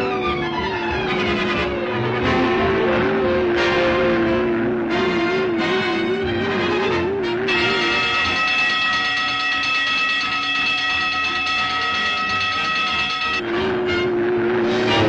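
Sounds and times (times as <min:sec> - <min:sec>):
orchestral music: 0:00.0 - 0:15.0
shrill whistle-like tone: 0:07.5 - 0:14.1.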